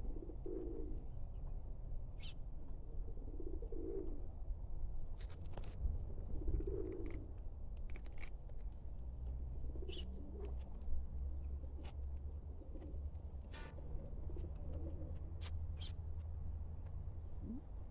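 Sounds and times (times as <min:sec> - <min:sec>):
bird cooing softly: 0:00.0 - 0:01.1, 0:02.2 - 0:04.3, 0:06.0 - 0:07.4, 0:09.6 - 0:10.6, 0:11.5 - 0:15.9, 0:17.3 - 0:17.9.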